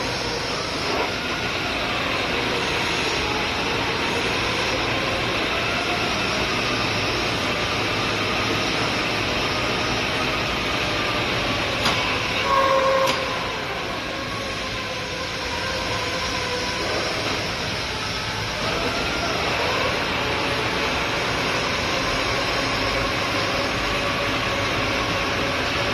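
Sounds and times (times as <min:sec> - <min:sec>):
lathe whine: 0:00.0 - 0:25.9.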